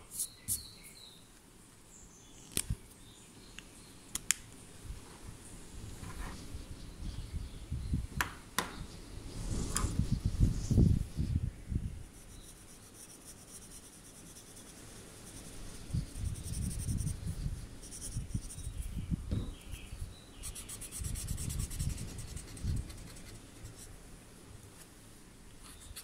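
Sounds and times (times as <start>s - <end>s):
pencil scratching on paper: 12.0s - 18.8s, 20.4s - 23.9s.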